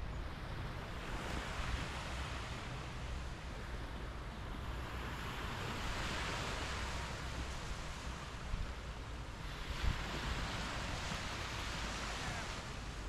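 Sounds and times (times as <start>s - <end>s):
waves washing onto beach: 0.0s - 13.0s
wind on microphone: 9.4s - 13.0s.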